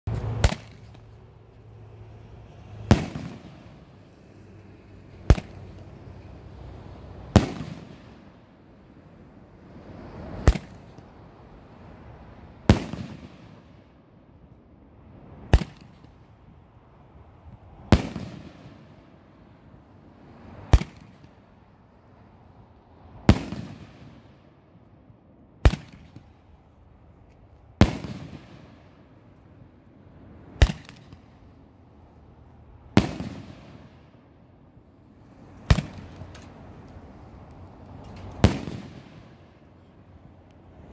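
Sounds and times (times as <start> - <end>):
firework bangs with echo: 2.9 - 3.7, 7.3 - 8.1, 12.7 - 13.6, 17.9 - 18.9, 23.3 - 24.3, 27.8 - 28.8, 33.0 - 34.0, 38.4 - 39.4.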